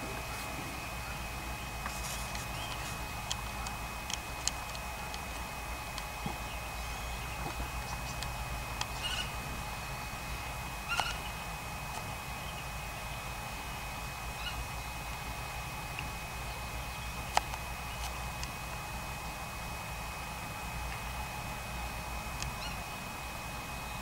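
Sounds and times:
low outdoor rumble: 0.0 - 24.0
bird calls: 0.1 - 4.7, 5.7 - 11.6, 12.3 - 15.0, 16.4 - 18.2, 22.4 - 23.0.

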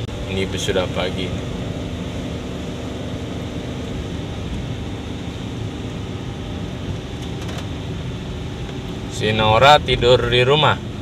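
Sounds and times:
car engine hum: 0.0 - 11.0.

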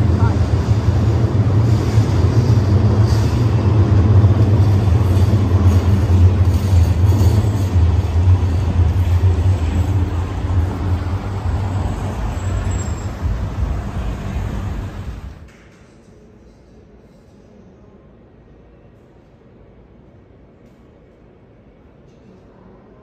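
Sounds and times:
cars passing with engine rumble: 8.2 - 15.4.

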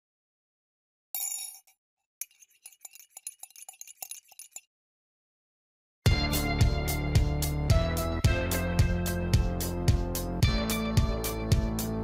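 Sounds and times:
music with heavy beat: 6.1 - 12.0.

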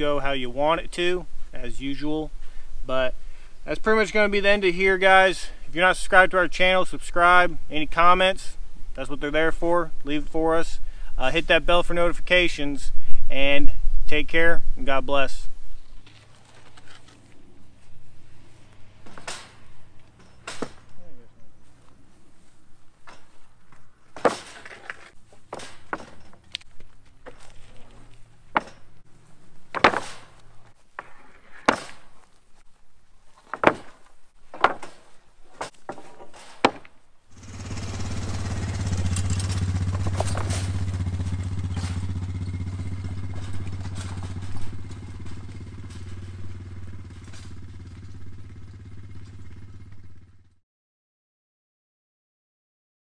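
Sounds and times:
wooden boards knocking and clattering: 19.0 - 20.9, 23.0 - 26.6, 27.2 - 29.0, 29.7 - 32.3, 33.4 - 37.0
small engine running: 37.3 - 50.6.

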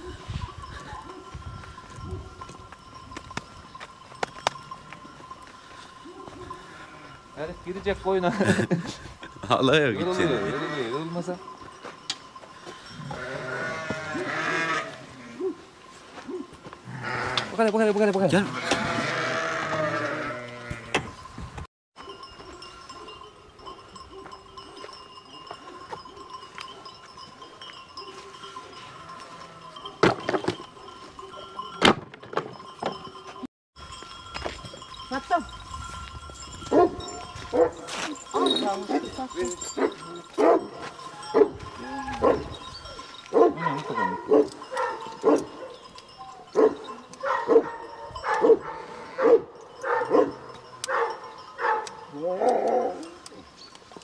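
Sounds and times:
sheep bells ringing: 0.0 - 54.0
dogs barking: 36.7 - 42.6, 43.3 - 52.1.

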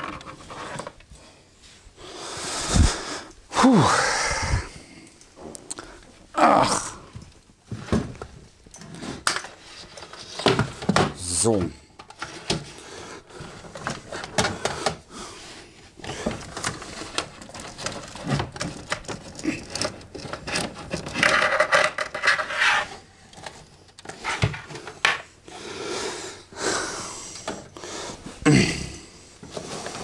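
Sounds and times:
hands rummaging through cables: 12.0 - 25.3
grating scrape: 19.6 - 23.1.

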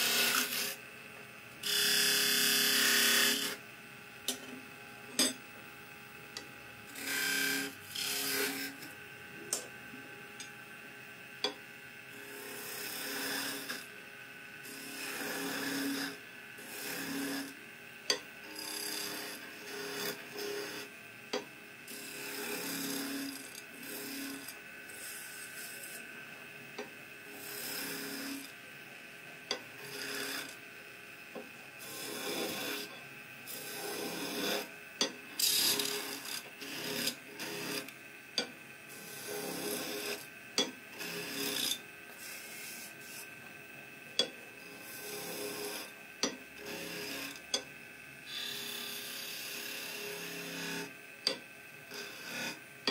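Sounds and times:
chisel scraping wood on lathe: 0.0 - 0.8, 1.6 - 3.6, 6.9 - 8.8, 12.3 - 13.8, 14.6 - 17.6, 18.5 - 20.9, 21.9 - 26.0, 27.4 - 28.5, 29.8 - 30.6, 31.8 - 34.7, 35.4 - 37.9, 38.9 - 40.2, 40.9 - 43.2, 44.6 - 45.9, 46.6 - 47.4, 48.3 - 50.9, 51.9 - 52.9.

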